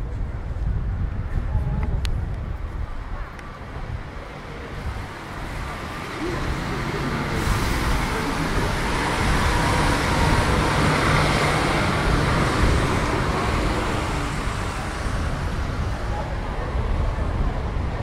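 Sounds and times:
general traffic: 0.0 - 18.0
bus engine passing: 3.6 - 18.0
tyres hissing on wet road: 4.5 - 17.9.

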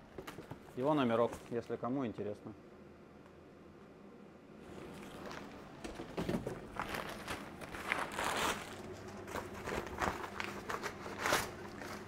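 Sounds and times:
plastic bag crinkling: 6.6 - 12.0.

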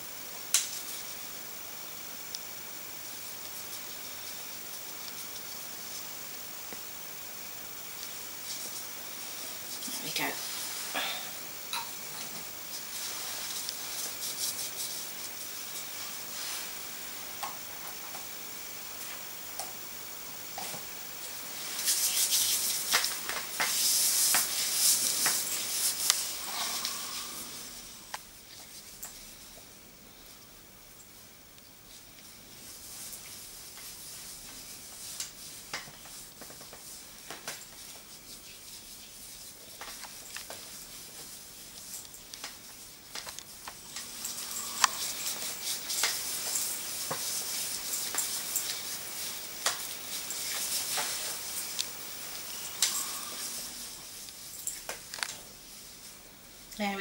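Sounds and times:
steady hiss: 0.0 - 57.0
gloved hand rubbing skin: 12.6 - 16.8, 21.6 - 22.9, 42.5 - 53.5.

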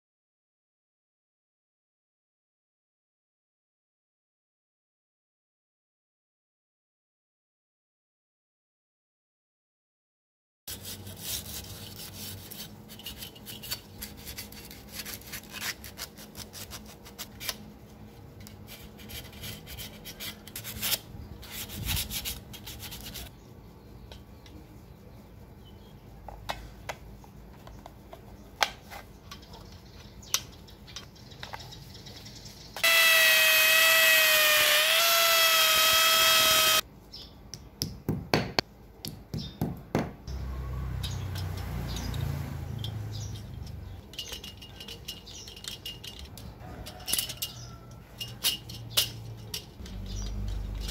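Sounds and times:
electric drill whining: 32.8 - 36.8
handling clicks and knocks: 41.0 - 50.9.

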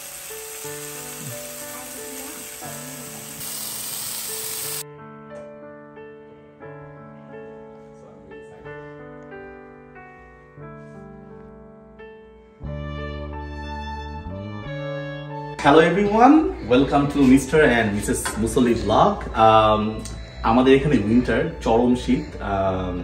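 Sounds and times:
skewers sizzling on grill: 0.0 - 4.8
background music with held notes: 0.0 - 23.0.

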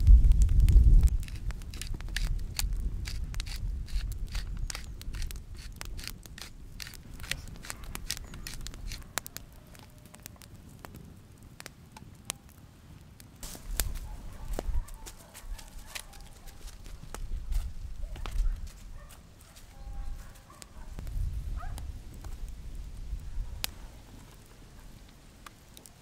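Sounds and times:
faint low rumble: 0.0 - 1.7
campfire crackling: 0.0 - 26.0.

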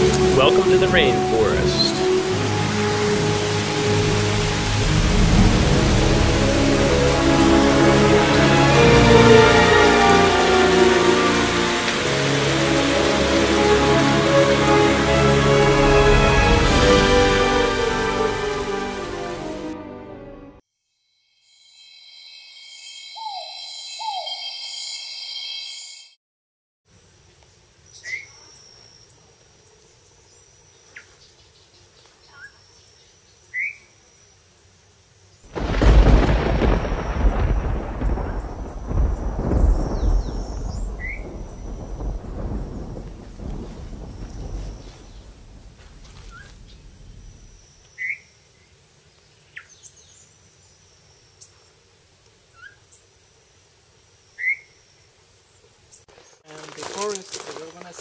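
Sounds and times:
birds chirping and calling: 0.0 - 2.2, 22.9 - 25.6
birds chirping: 0.0 - 4.7, 22.4 - 25.9, 36.1 - 51.6
low rumble: 4.0 - 8.4, 35.6 - 47.6
high insect whine: 20.7 - 26.2, 28.0 - 49.0.

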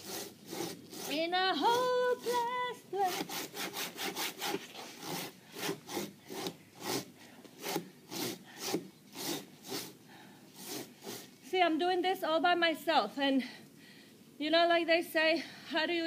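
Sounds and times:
strokes cutting into wood: 0.0 - 2.4, 3.1 - 11.3.

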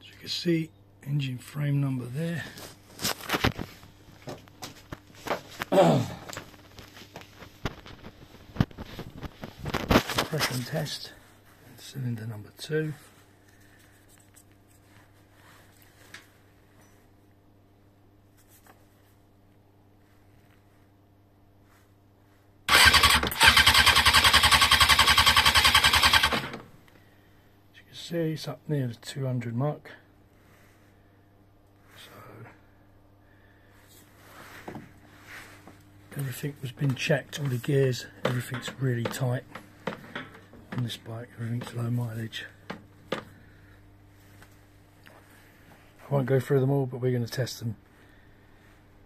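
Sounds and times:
faint steady hum: 0.0 - 49.0
motorcycle engine cranking: 22.7 - 26.6.

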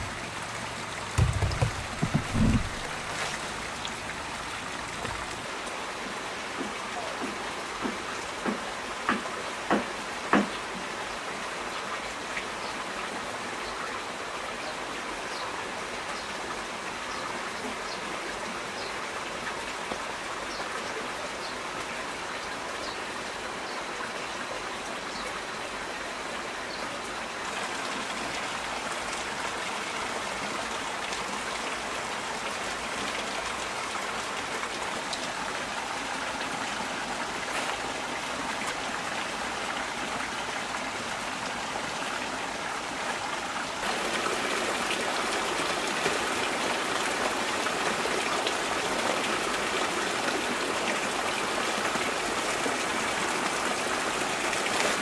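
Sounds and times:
water drips ticking: 0.0 - 5.5
heavy rain falling: 0.0 - 55.0.

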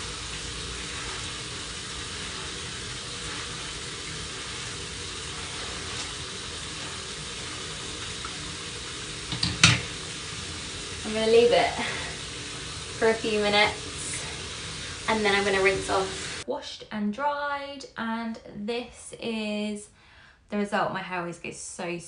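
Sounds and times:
running water hiss: 0.0 - 16.4.

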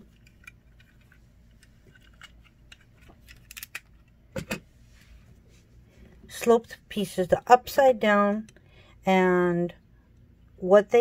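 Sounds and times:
plastic bricks clicking: 0.1 - 4.2.

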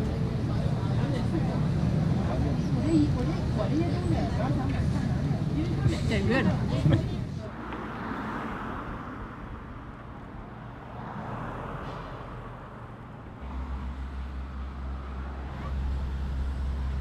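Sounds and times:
cars passing on city street: 0.0 - 17.0.

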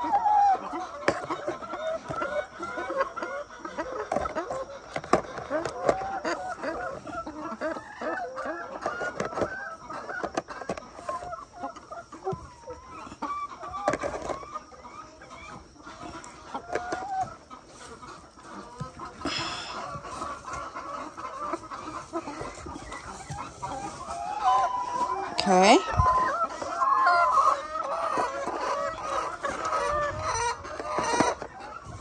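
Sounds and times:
hens clucking: 0.0 - 32.0.

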